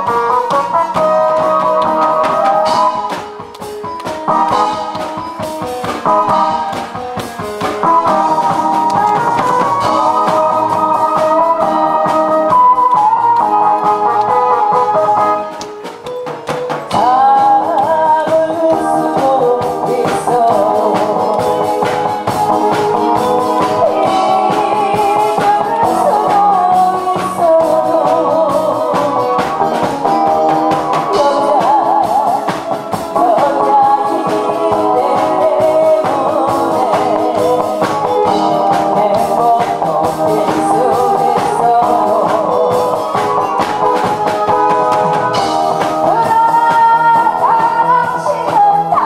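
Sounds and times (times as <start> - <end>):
backing music with guitar: 0.0 - 49.0
woman singing into a microphone: 8.0 - 15.3, 16.9 - 43.0, 45.3 - 49.0.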